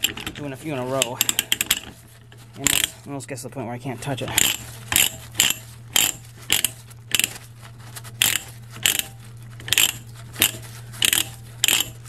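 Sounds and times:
pipe threader ratchet clicking: 0:01.0 - 0:02.0, 0:02.6 - 0:03.0, 0:04.3 - 0:07.4, 0:08.2 - 0:12.0.

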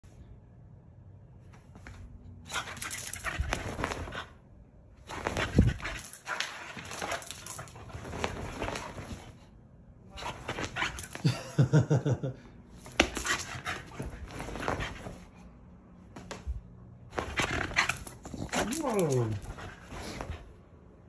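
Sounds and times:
dog rustling and scratching on rug: 0:01.5 - 0:04.4, 0:05.0 - 0:09.5, 0:10.2 - 0:11.2, 0:12.8 - 0:20.8.

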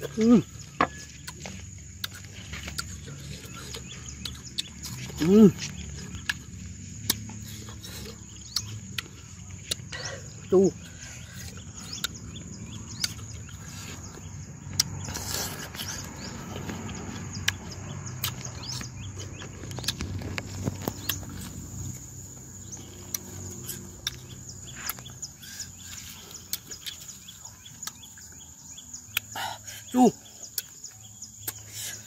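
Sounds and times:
birds chirping: 0:00.0 - 0:32.0
high insect drone: 0:00.0 - 0:32.0
person chewing fruit: 0:00.0 - 0:32.0.

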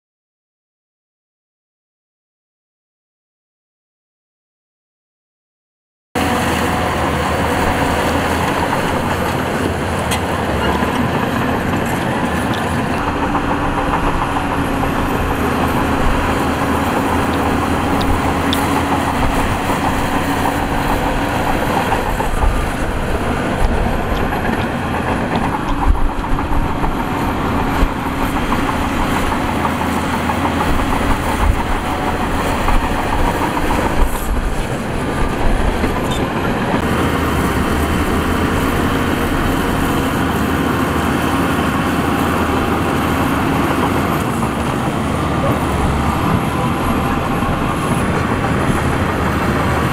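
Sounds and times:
heavy diesel engines running: 0:06.2 - 0:49.9.

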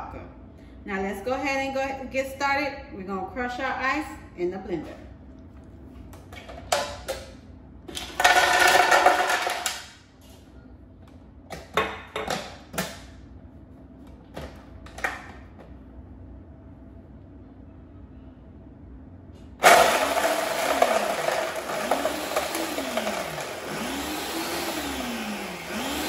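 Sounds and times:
ice cubes clattering into blender jar: 0:08.0 - 0:09.8.

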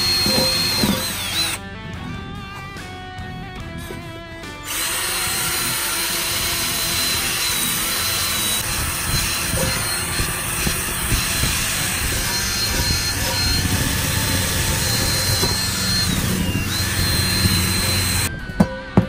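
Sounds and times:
drill with wire brush scouring: 0:00.0 - 0:01.6, 0:04.6 - 0:18.3
guitar music: 0:00.0 - 0:19.0.

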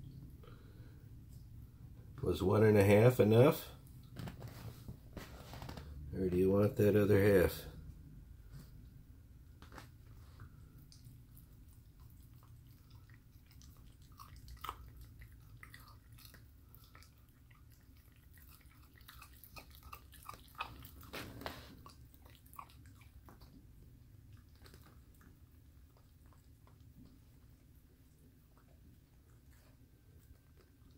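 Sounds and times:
puppy chewing wetly: 0:09.6 - 0:30.9.

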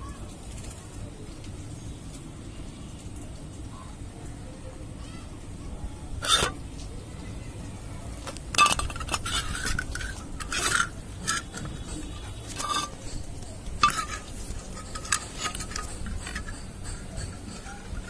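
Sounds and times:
wire birdcage clinking and rattling: 0:08.3 - 0:18.0.

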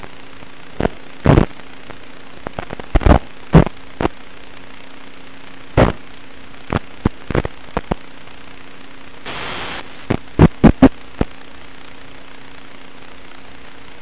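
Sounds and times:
static hiss and hum: 0:00.0 - 0:14.0
sharp crackling pops: 0:00.8 - 0:04.5, 0:05.8 - 0:08.1, 0:09.2 - 0:11.4.

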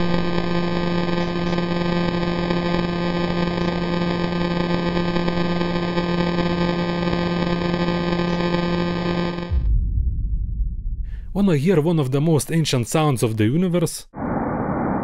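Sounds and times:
steady buzzing hum: 0:00.0 - 0:10.1.

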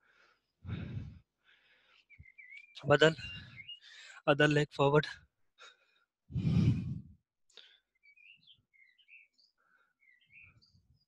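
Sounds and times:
faint bird chirps: 0:01.8 - 0:04.2, 0:07.6 - 0:11.0.

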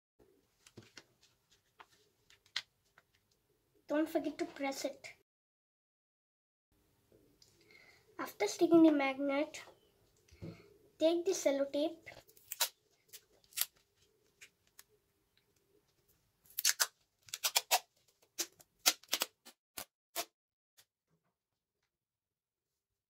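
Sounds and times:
tape snips: 0:16.5 - 0:20.3.

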